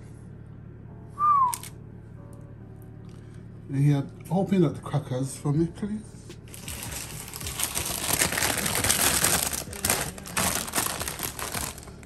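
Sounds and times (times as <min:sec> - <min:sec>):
plastic packet crinkling: 0:06.5 - 0:12.0.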